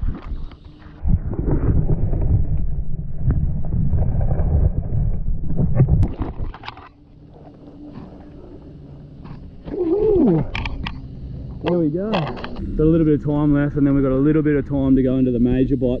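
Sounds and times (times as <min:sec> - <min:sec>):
water sloshing underwater: 0:00.0 - 0:12.6.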